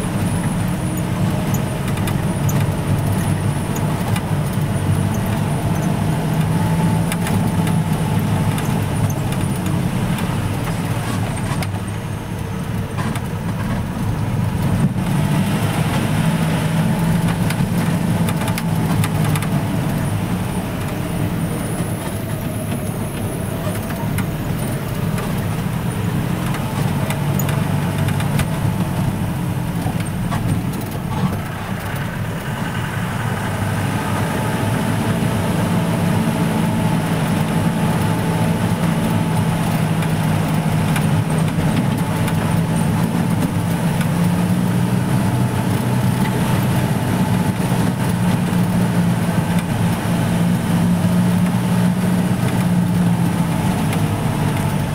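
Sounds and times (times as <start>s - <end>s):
jeep engine running: 0.0s - 54.9s.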